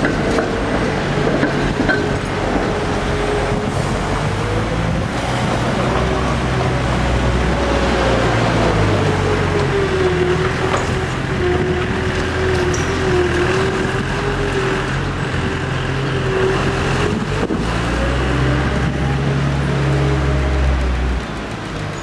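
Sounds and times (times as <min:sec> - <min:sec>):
city street traffic: 0:00.0 - 0:22.0.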